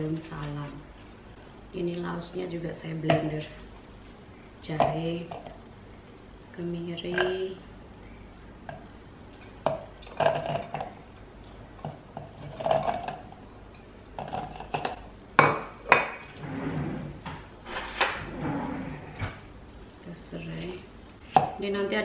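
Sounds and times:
kitchenware clattering: 0:09.6 - 0:11.0, 0:11.8 - 0:19.4.

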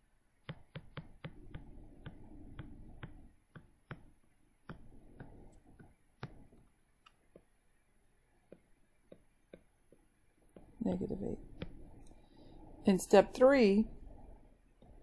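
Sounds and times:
stylus tapping on tablet screen: 0:00.4 - 0:07.6, 0:08.4 - 0:12.2.

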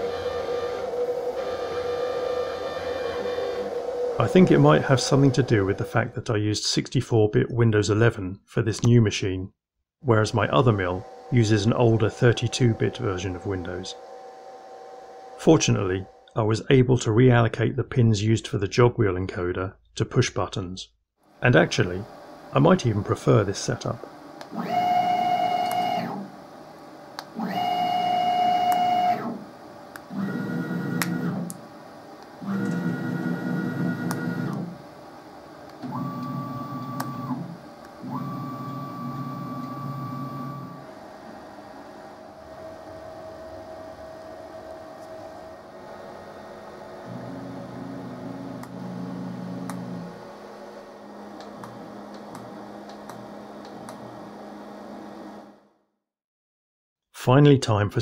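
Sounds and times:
stepper motors whining: 0:00.0 - 0:06.1, 0:10.1 - 0:16.3, 0:22.6 - 0:26.4, 0:27.2 - 0:55.4.

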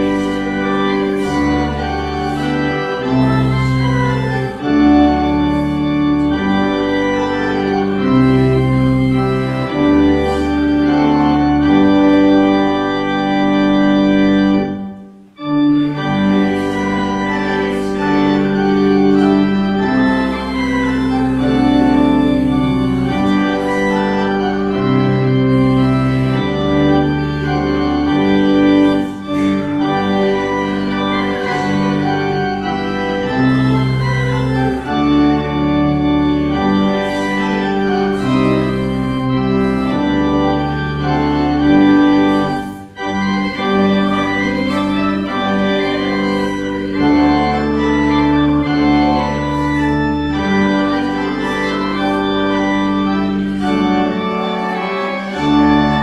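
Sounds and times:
church organ playing a hymn: 0:00.0 - 0:56.0.

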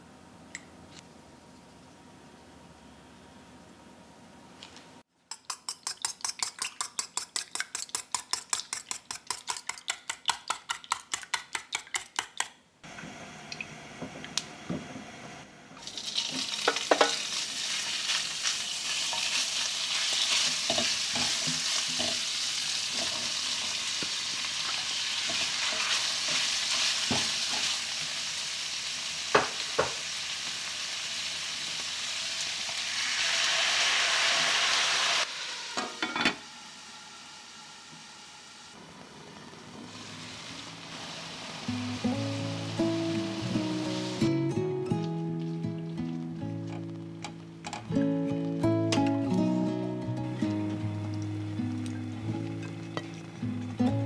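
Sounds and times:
whisking eggs in steel bowl: 0:05.3 - 0:12.5
chopsticks tapping: 0:05.3 - 0:12.6
pork sizzling in a wok: 0:15.8 - 0:44.4, 0:50.2 - 0:54.0.

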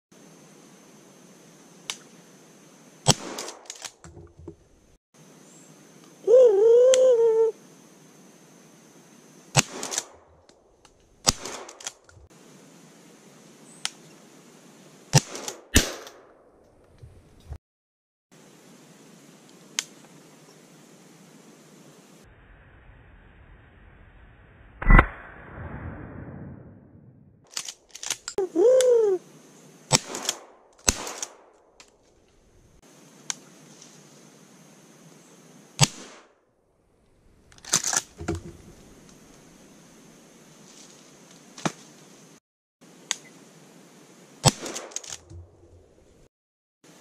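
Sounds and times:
shotgun shots echoing: 0:03.1 - 0:03.7, 0:11.2 - 0:11.8, 0:15.2 - 0:16.4, 0:29.9 - 0:31.5, 0:35.8 - 0:36.2
rising and falling call: 0:06.2 - 0:07.6.

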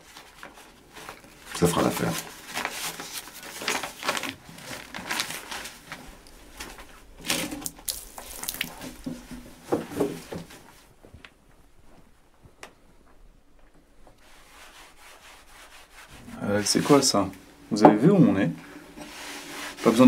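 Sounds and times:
paper bag rustling: 0:00.0 - 0:11.1.

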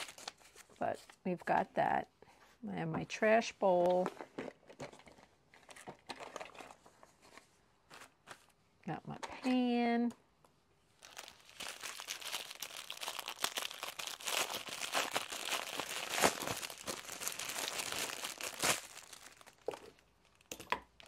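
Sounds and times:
plastic packaging crinkling: 0:00.0 - 0:00.9, 0:03.9 - 0:08.6, 0:11.0 - 0:21.0.

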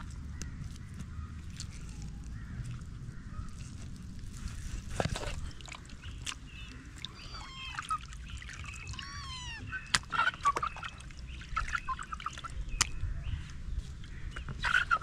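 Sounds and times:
birds chirping and calling: 0:05.4 - 0:15.0.

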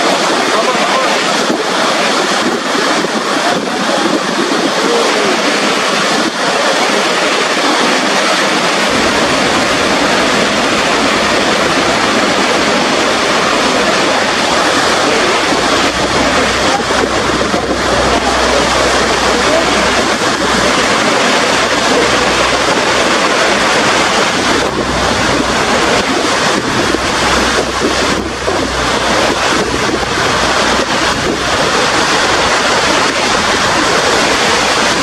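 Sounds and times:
churning river: 0:00.0 - 0:35.0
waterfall rushing: 0:00.0 - 0:35.0
low rumble: 0:07.8 - 0:35.0.

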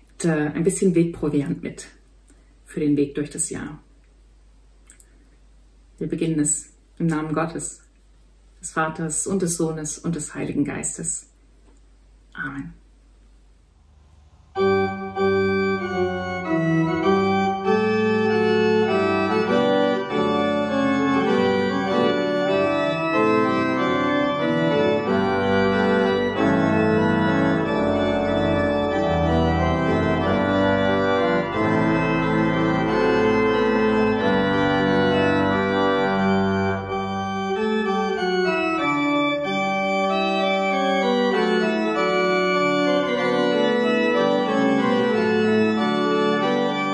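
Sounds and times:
church pipe organ chords: 0:14.0 - 0:46.9.

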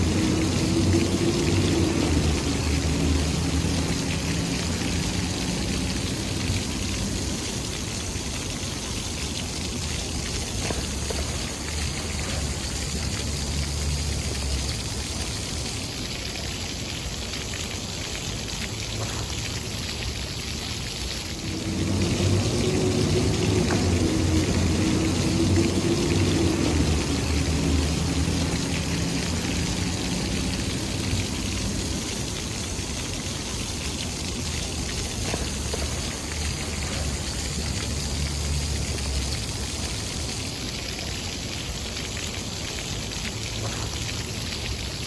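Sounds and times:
fountain jets splashing: 0:00.0 - 0:45.0
low engine drone: 0:21.2 - 0:40.0.

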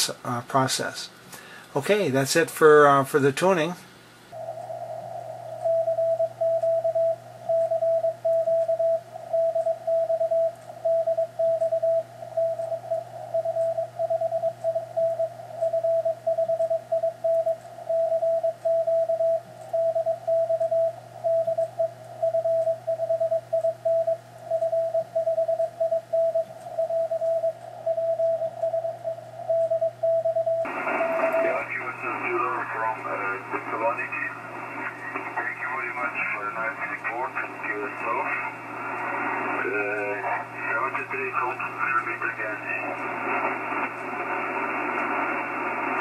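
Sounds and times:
morse code tone: 0:04.4 - 0:32.9.

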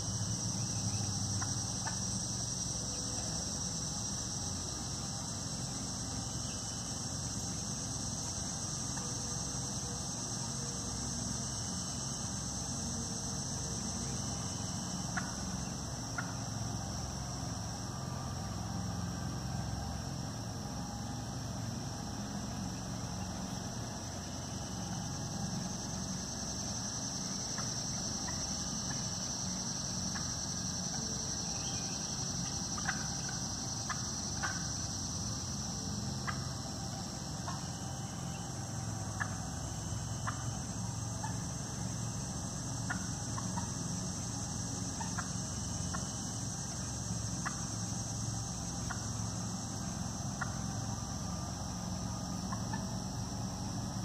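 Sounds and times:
high insect chorus: 0:00.0 - 0:54.0
faint turkey clucks: 0:00.9 - 0:02.1, 0:15.0 - 0:16.5, 0:30.0 - 0:34.8, 0:36.2 - 0:37.7, 0:39.1 - 0:39.6, 0:40.2 - 0:40.5, 0:42.8 - 0:43.8, 0:44.9 - 0:46.1, 0:47.4 - 0:47.7, 0:50.4 - 0:50.8, 0:52.4 - 0:53.0.

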